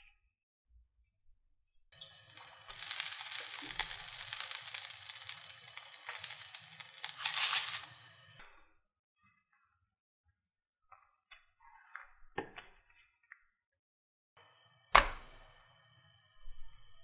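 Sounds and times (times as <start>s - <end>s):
water sizzling on hot pan: 2.0s - 8.5s, 14.4s - 17.0s.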